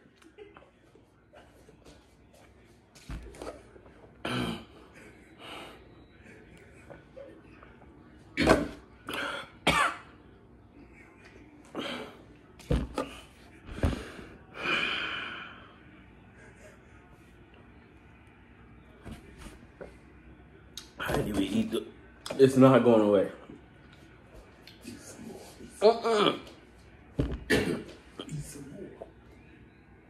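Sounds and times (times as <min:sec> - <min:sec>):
man coughing: 0:04.2 - 0:05.0, 0:08.4 - 0:10.1, 0:27.5 - 0:28.4.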